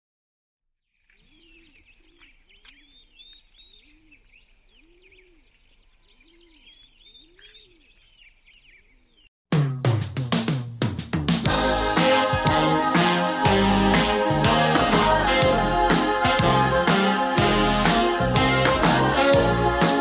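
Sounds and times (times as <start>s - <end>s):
small birds chirping: 0.9s - 9.3s.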